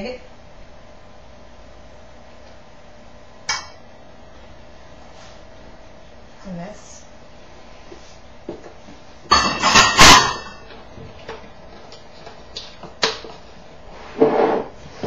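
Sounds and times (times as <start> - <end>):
kitchen items clattering: 9.3 - 10.8.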